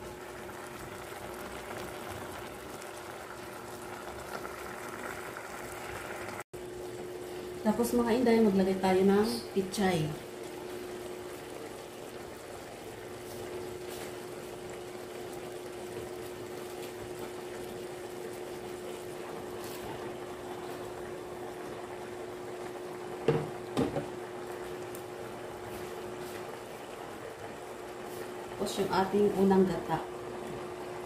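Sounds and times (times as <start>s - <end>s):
gas burner low hum: 0.0s - 31.0s
liquid bubbling in pan: 0.0s - 31.0s
sharp knocks in pan: 23.2s - 24.1s.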